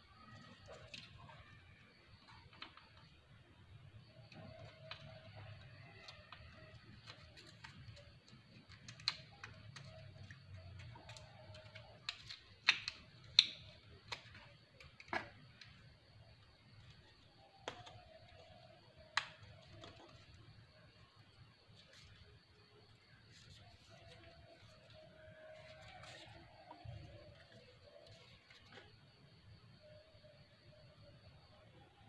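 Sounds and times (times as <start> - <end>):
plastic parts clicking and tapping: 2.2 - 3.2, 4.1 - 20.4.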